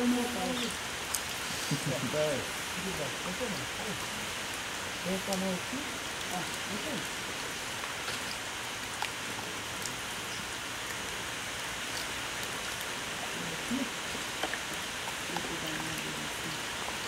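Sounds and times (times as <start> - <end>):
light rain falling: 0.0 - 17.0
raindrop clicks: 1.0 - 1.4, 7.8 - 12.9, 14.3 - 17.0.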